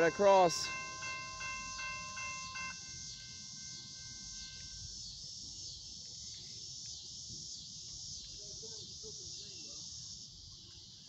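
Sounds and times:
railroad crossing bell ringing: 0:00.0 - 0:05.0
insects droning: 0:00.0 - 0:11.0.

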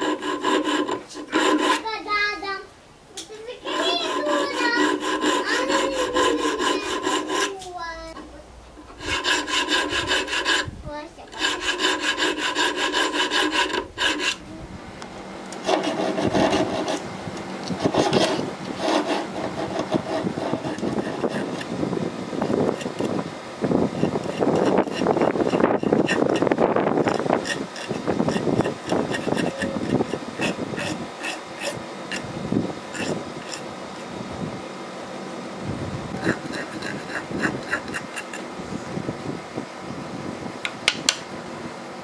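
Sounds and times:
file rasping on steel: 0:00.0 - 0:02.0, 0:03.5 - 0:08.2, 0:08.8 - 0:10.7, 0:11.3 - 0:14.4, 0:15.6 - 0:17.0, 0:17.7 - 0:21.8, 0:22.4 - 0:23.2, 0:23.9 - 0:32.3, 0:32.9 - 0:33.7, 0:36.1 - 0:38.5.

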